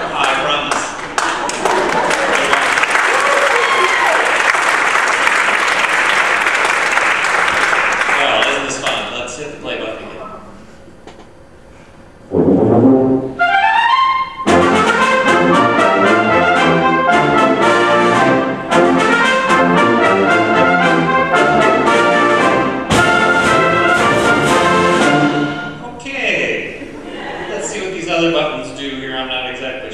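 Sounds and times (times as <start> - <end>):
wind band playing brass music: 12.3 - 25.8.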